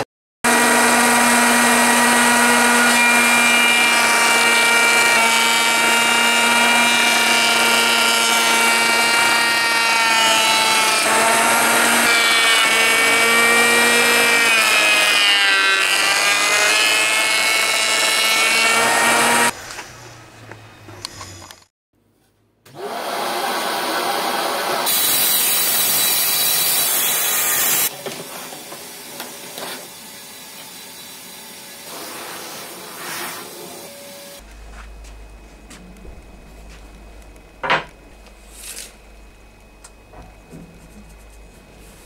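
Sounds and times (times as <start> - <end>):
electric hand planer whining: 0.5 - 19.5, 22.8 - 27.9.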